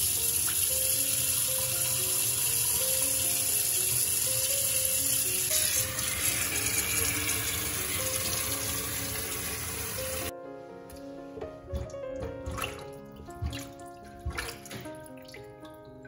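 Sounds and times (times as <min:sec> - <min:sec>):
tap water running into sink: 0:00.0 - 0:10.3, 0:11.7 - 0:15.6
background music: 0:00.0 - 0:16.0
water drips: 0:11.7 - 0:16.0.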